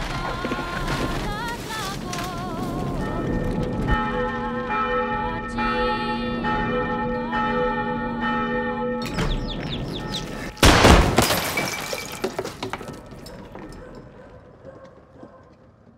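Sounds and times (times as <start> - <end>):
loud crash of breaking: 0.0 - 4.0, 10.2 - 13.5
church bell ringing: 2.9 - 10.6
chicks peeping: 9.0 - 10.6.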